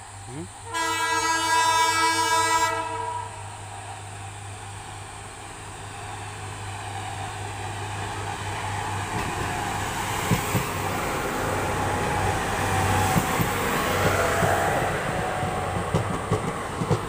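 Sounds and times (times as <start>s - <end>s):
rail machine droning: 0.0s - 17.0s
train wheel knocks: 10.2s - 10.8s, 13.0s - 17.0s.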